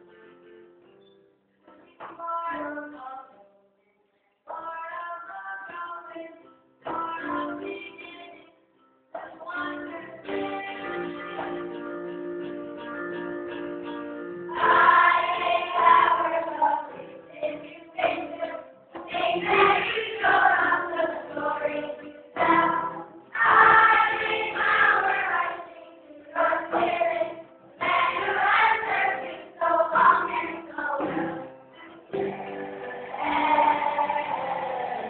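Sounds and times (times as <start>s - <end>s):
children singing together: 14.5s - 35.0s.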